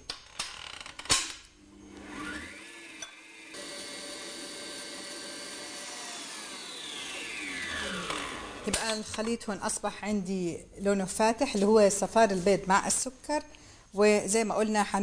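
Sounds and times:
stand mixer motor whine: 0:02.0 - 0:08.7.

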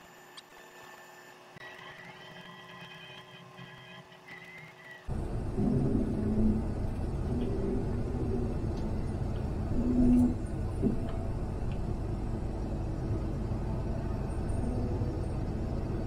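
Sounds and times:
combine engine low rumble: 0:05.0 - 0:16.0.

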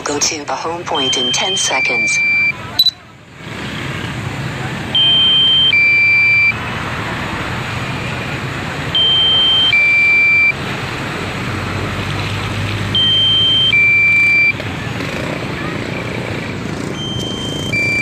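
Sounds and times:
steady background noise: 0:00.0 - 0:18.0
two-tone electronic beep: 0:00.8 - 0:03.0, 0:05.0 - 0:06.6, 0:09.0 - 0:10.6, 0:13.0 - 0:14.6, 0:17.0 - 0:18.0.

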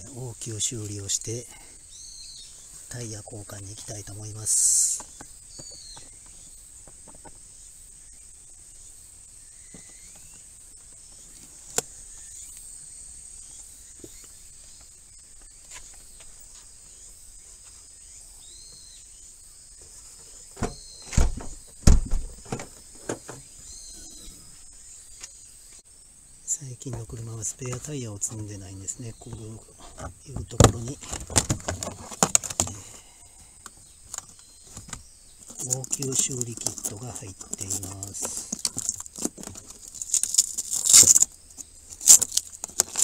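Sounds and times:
high insect trill: 0:00.0 - 0:43.0
car hatch opening knocks and thuds: 0:20.6 - 0:23.5.

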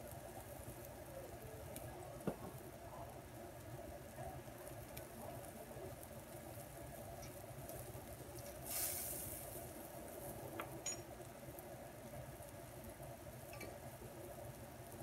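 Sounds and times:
food sizzling in a wok: 0:03.7 - 0:15.0.

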